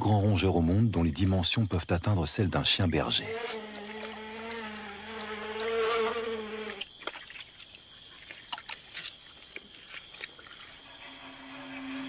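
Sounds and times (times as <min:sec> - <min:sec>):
insect buzzing: 0:02.5 - 0:12.0
animals walking through mud: 0:06.6 - 0:11.0.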